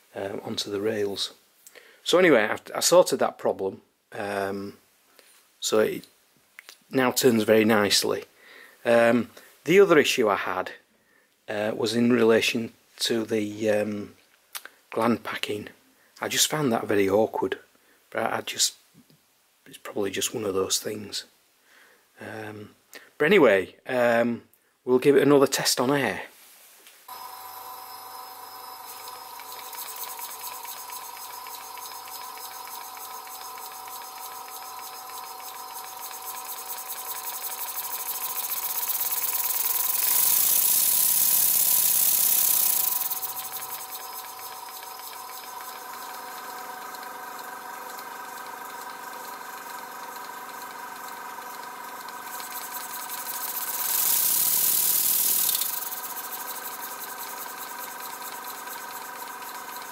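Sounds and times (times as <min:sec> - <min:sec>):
model steam engine running: 0:27.1 - 0:59.9.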